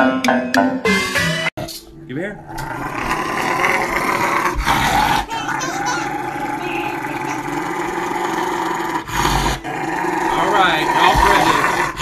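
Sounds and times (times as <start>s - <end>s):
dog growling: 2.4s - 12.0s.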